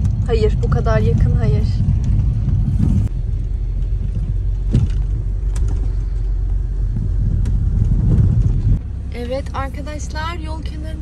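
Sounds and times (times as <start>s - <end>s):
vehicle engine and tyres rumbling: 0.0s - 11.0s
knocks and rattles: 3.8s - 8.8s.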